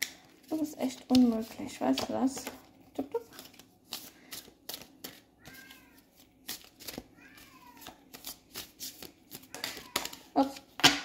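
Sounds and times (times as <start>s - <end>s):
cards being shuffled: 0.0s - 11.0s
cat meowing: 7.2s - 7.9s.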